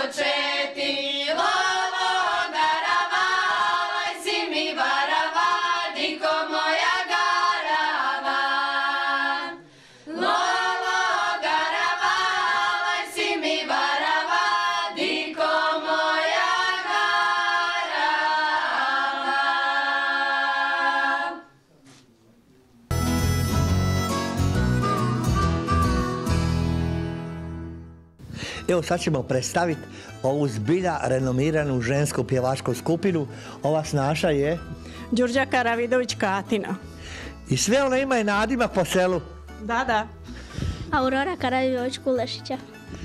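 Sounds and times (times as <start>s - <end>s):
women singing unaccompanied: 0.0s - 21.4s.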